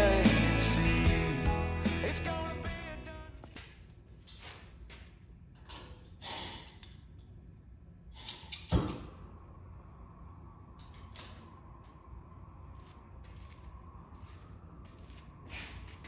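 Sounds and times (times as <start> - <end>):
gas hissing: 6.2 - 6.8.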